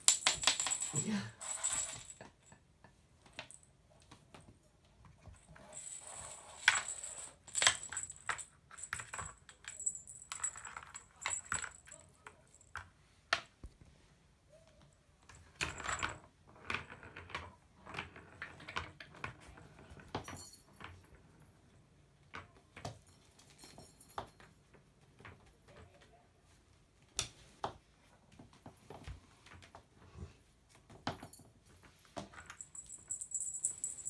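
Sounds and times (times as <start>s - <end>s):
toy clicks and rattles: 0.0s - 2.4s.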